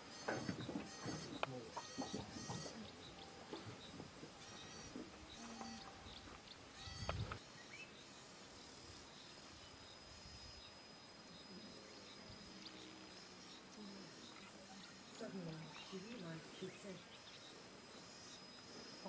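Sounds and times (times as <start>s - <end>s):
bird chirps: 0.0s - 8.2s
high-pitched hiss: 0.0s - 19.0s
insect chirps: 0.0s - 19.0s.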